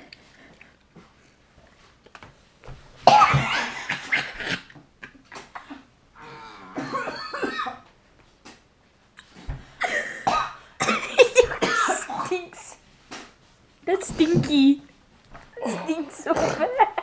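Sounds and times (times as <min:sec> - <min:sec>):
boy coughing: 0:03.1 - 0:04.6, 0:06.8 - 0:07.8, 0:09.8 - 0:12.7, 0:15.6 - 0:16.8
laughter: 0:16.2 - 0:17.0.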